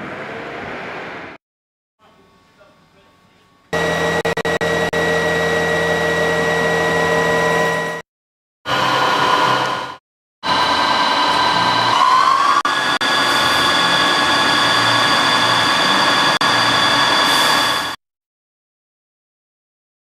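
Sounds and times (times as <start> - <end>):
lathe machine whine: 3.8 - 8.0, 8.7 - 18.0.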